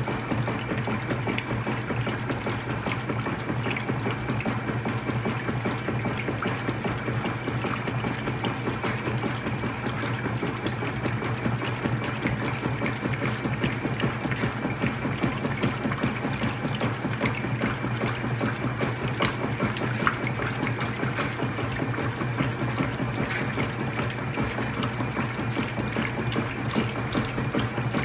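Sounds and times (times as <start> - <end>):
washing machine motor hum: 0.0 - 28.0
water churning and sloshing: 0.0 - 28.0.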